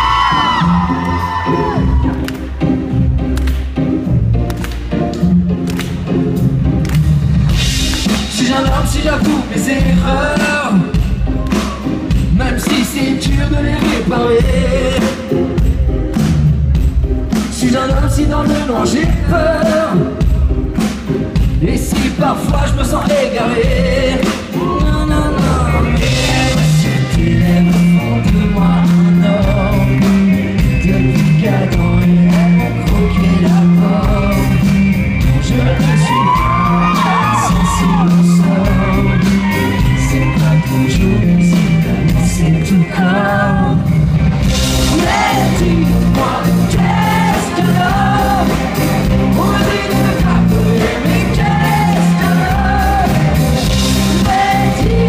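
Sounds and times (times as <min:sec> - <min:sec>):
live pop-rock band: 0:00.0 - 0:55.0
man singing into a microphone: 0:08.2 - 0:11.0, 0:12.3 - 0:15.3, 0:17.5 - 0:20.3, 0:21.6 - 0:43.8.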